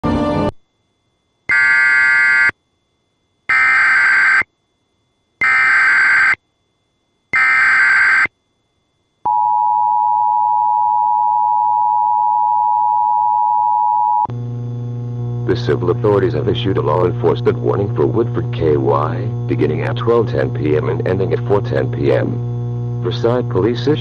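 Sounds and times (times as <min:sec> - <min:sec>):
digital data tone bursts: 0:03.5 - 0:04.5, 0:05.4 - 0:06.4, 0:07.4 - 0:08.3.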